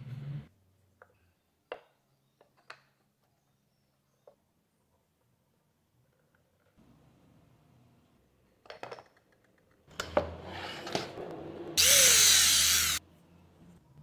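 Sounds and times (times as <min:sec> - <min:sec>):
electric drill boring wood: 0:11.8 - 0:13.0.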